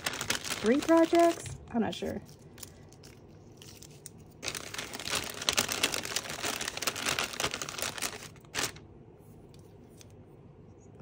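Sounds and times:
packaging crinkling: 0.0 - 1.6, 2.2 - 8.8.

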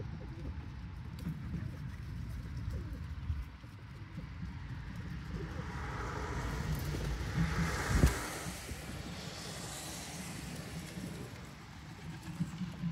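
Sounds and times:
low rumble: 4.4 - 12.1
hiss: 6.1 - 12.7.

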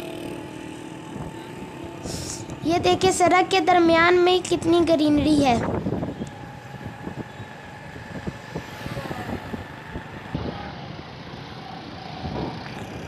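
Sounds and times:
cars and motorcycles passing: 0.0 - 13.0.

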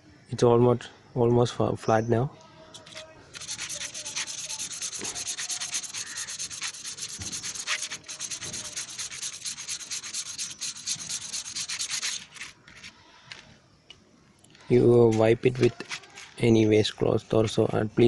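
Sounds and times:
brake pad rubbed on sandpaper: 2.8 - 12.9, 15.0 - 16.6.

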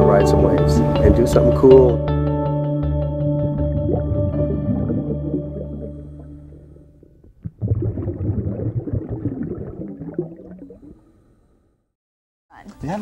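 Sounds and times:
background music: 0.0 - 6.8
water gurgling and bubbling: 3.4 - 11.1.

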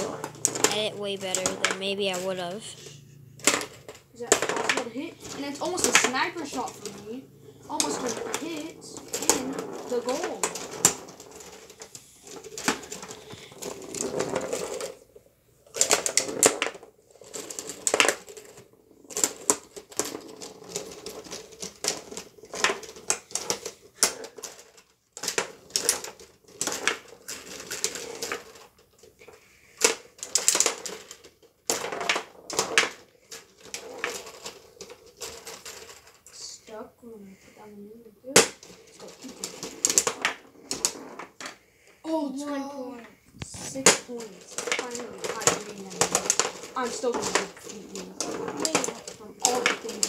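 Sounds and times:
rods rattling: 0.0 - 28.6, 42.5 - 50.0
foosball players clacking: 0.0 - 36.5, 37.6 - 50.0.

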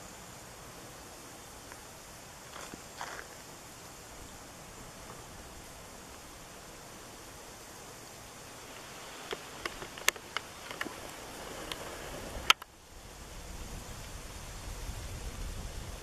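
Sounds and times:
low wind rumble: 3.4 - 16.0
wind noise on microphone: 8.9 - 16.0
sharp clicks: 12.4 - 12.7.

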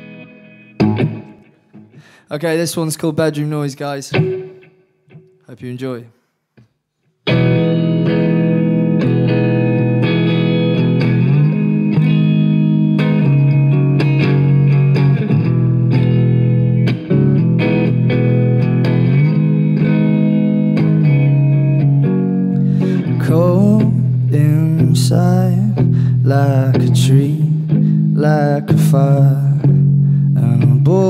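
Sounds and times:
electric guitar strumming chords: 0.0 - 2.2, 4.1 - 5.5, 7.2 - 31.0.

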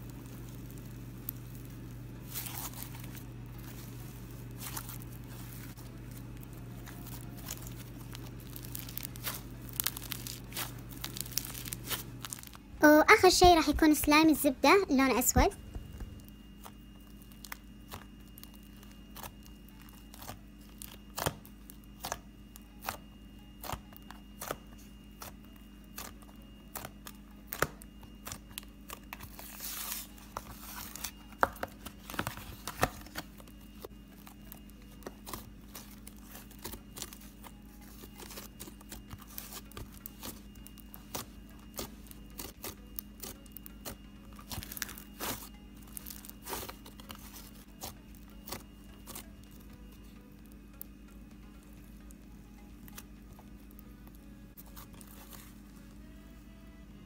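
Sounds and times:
slime popping and crackling: 0.0 - 5.8, 6.4 - 12.6, 15.4 - 22.2, 34.3 - 49.6.

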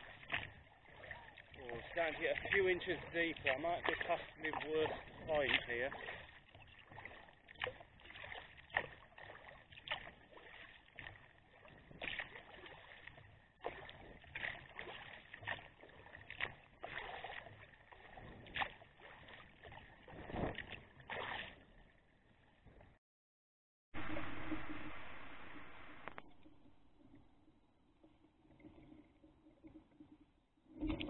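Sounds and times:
water dripping: 0.0 - 19.9
paddle splashing in water: 0.0 - 22.9.

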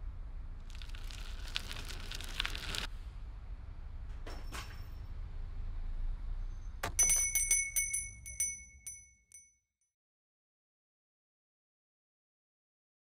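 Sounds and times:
bicycle bell ringing: 6.8 - 9.5.

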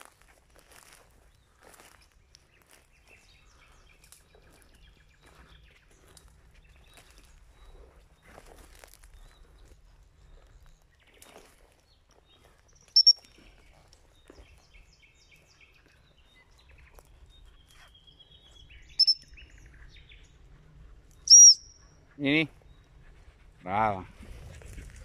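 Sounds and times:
faint birdsong: 0.6 - 25.0
gundog whistle blasts: 13.0 - 13.2, 21.3 - 21.7.

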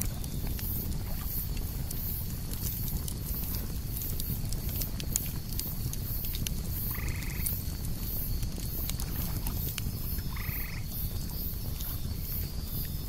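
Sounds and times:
campfire crackling and popping: 0.0 - 13.0
cicadas buzzing: 0.0 - 13.0
frog croaking: 6.9 - 7.5, 10.2 - 10.9.

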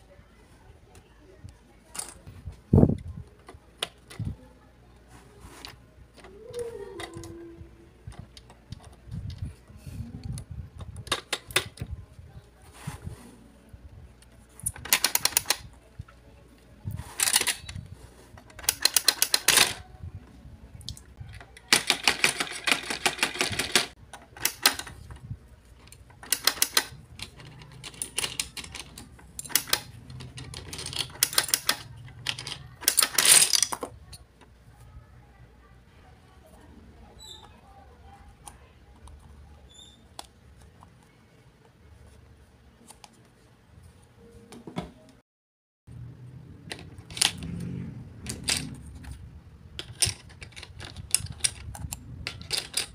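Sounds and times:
plastic game pieces clicking: 14.6 - 15.6, 18.5 - 19.8, 21.6 - 25.0, 25.8 - 34.2, 49.8 - 52.9
plastic pieces rattling in tray: 26.2 - 33.9, 49.8 - 52.9.

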